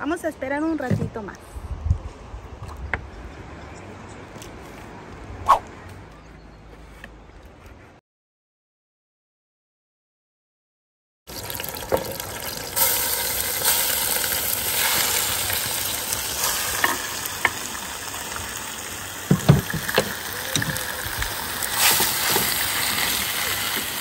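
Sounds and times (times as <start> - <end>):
meat sizzling in hot oil: 11.3 - 24.0.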